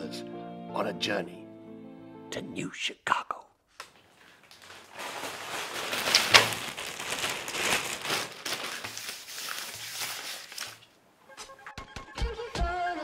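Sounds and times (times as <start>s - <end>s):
banknotes rustling: 3.8s - 11.0s
plastic bag crinkling: 3.8s - 11.0s.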